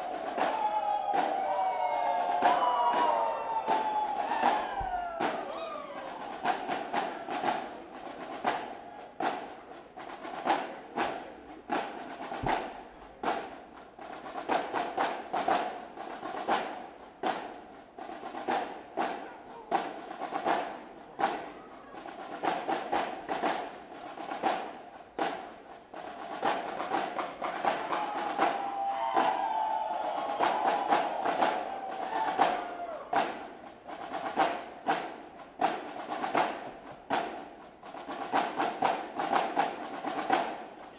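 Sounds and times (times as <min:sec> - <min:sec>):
snare drum cadence: 0:10.4 - 0:13.5.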